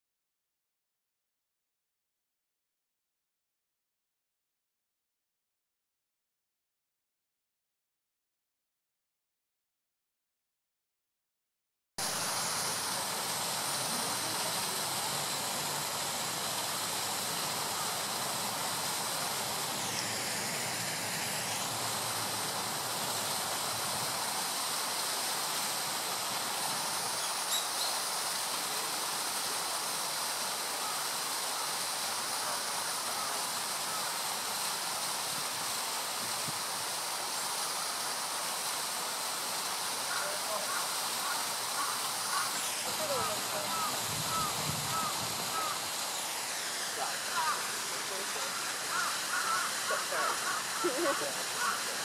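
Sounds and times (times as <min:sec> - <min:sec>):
steady outdoor hiss: 0:12.0 - 0:52.0.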